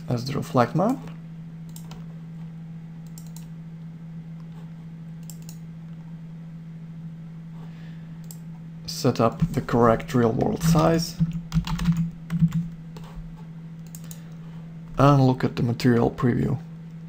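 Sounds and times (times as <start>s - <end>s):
steady low hum: 0.0s - 17.0s
computer mouse clicks: 1.7s - 2.0s, 3.0s - 3.5s, 5.2s - 5.6s, 8.2s - 8.4s, 13.8s - 14.3s.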